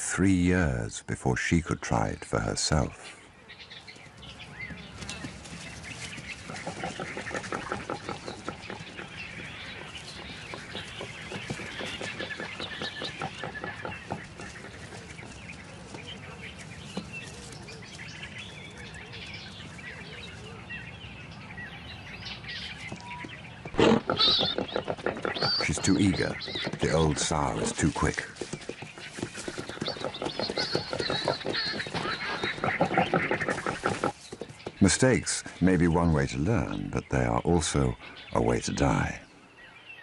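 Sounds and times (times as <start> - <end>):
birds chirping: 0.0 - 40.0
animals bolting: 4.3 - 20.6, 22.6 - 35.2
piglets grunting and squeaking: 6.4 - 15.2, 23.7 - 28.2, 29.0 - 34.2.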